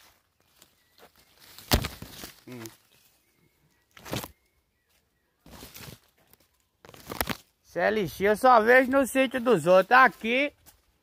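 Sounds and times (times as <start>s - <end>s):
dry leaves rustling and crunching: 0.0s - 3.1s, 4.0s - 4.3s, 5.4s - 7.5s.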